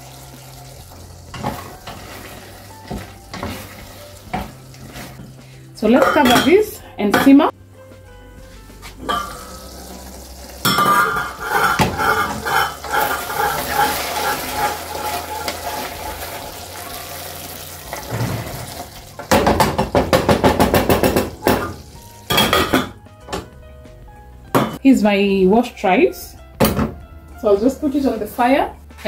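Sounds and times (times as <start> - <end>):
wooden spoon scraping saucepan: 1.4 - 5.4, 10.8 - 16.6.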